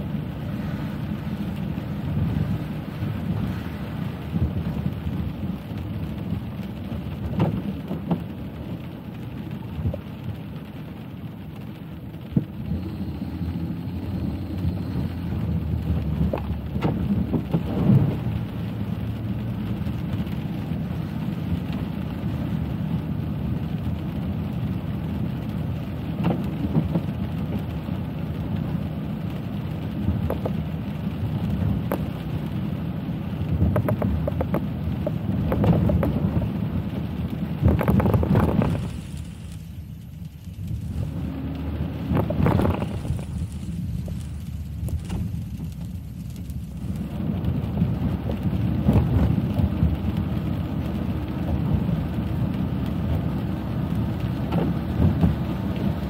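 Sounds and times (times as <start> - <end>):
rain on car: 0.0 - 56.0
tyres and engine on wet road: 0.0 - 56.0.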